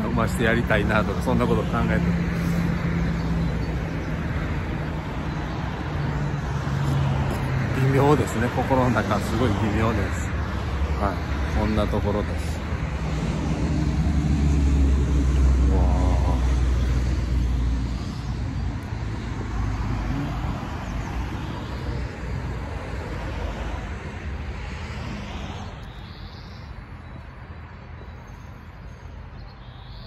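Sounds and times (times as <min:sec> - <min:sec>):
bird chirp: 0:00.0 - 0:08.4, 0:25.4 - 0:30.0
vehicle rumble: 0:00.0 - 0:29.9.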